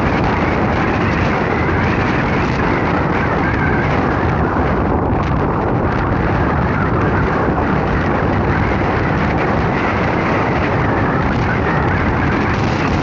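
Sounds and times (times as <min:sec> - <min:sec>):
rushing wind: 0:00.0 - 0:13.0
vehicle road noise: 0:00.0 - 0:13.0.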